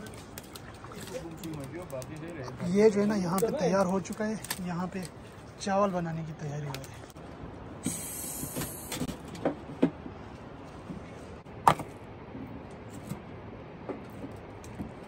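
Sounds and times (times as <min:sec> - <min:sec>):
embers being poked: 0:00.0 - 0:05.2.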